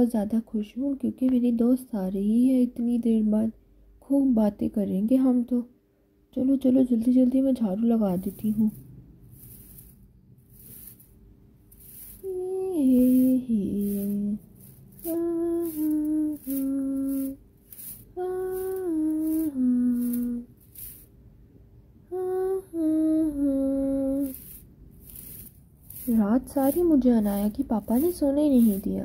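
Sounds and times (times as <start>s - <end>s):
broom sweeping hard floor: 8.0s - 21.2s, 23.4s - 29.0s
woman humming: 12.2s - 14.4s, 15.0s - 17.4s, 18.2s - 20.5s, 22.1s - 24.4s.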